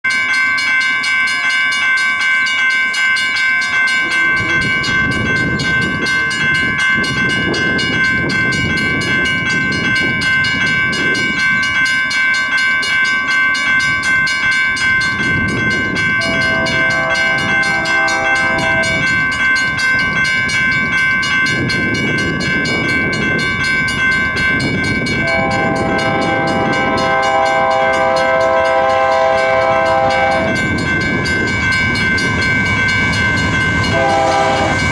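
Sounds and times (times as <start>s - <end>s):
steady high ringing tone: 0.0s - 34.9s
distant train air horn: 16.2s - 19.0s, 25.2s - 30.6s, 33.9s - 34.9s.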